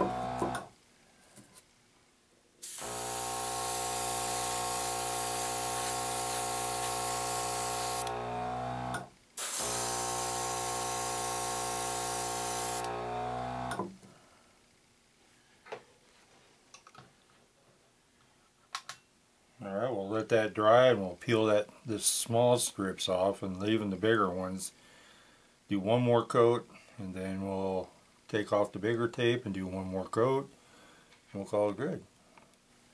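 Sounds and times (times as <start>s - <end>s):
compressor motor humming: 0.0s - 0.7s, 2.7s - 13.9s.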